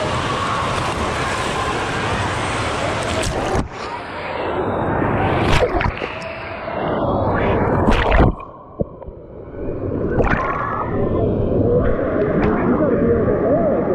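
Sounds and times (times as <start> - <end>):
water churning and splashing: 0.0 - 4.2, 5.2 - 6.4, 7.6 - 12.9
water sloshing over microphone: 7.3 - 13.9.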